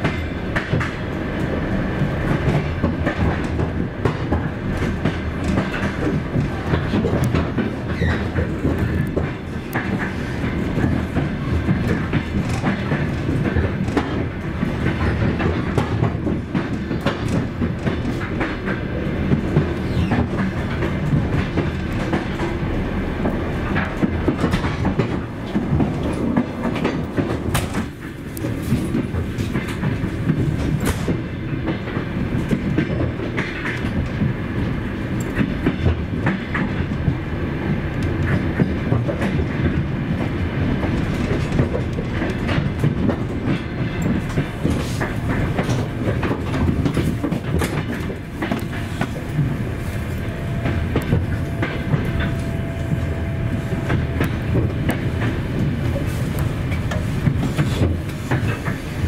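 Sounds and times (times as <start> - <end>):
clickety-clack over rail joints: 0.0 - 59.0
train wheels rumbling on rails: 0.0 - 59.0.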